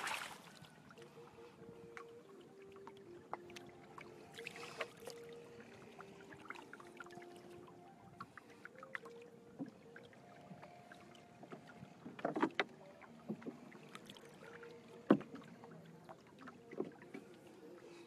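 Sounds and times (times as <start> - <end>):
water knocking against wooden hull: 11.4 - 13.6, 15.0 - 15.5.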